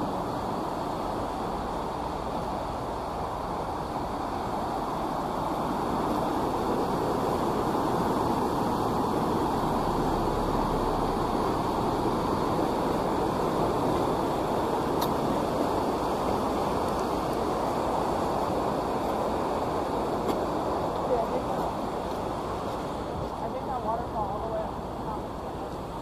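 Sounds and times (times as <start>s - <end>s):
river rushing over rapids: 0.0s - 26.0s.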